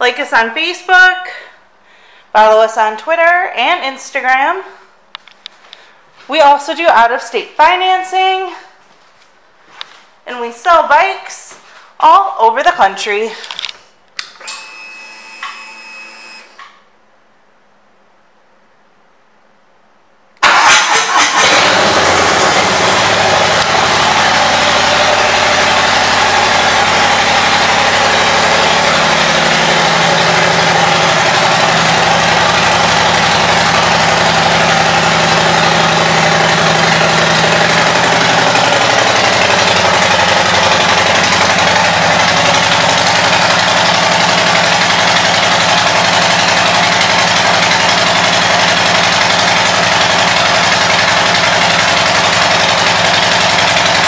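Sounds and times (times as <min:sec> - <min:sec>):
motorcycle engine idling: 0:21.2 - 0:54.0.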